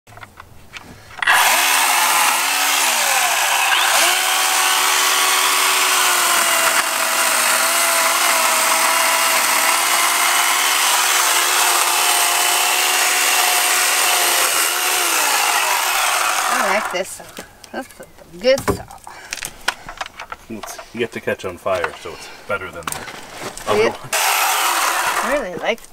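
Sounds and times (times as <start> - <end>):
electric chainsaw running: 1.2 - 17.1, 24.1 - 25.6.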